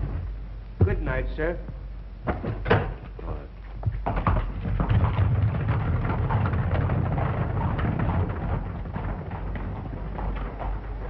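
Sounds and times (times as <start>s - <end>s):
hooves clip-clopping: 0.0s - 11.0s
rumble of rolling wheels: 2.2s - 11.0s.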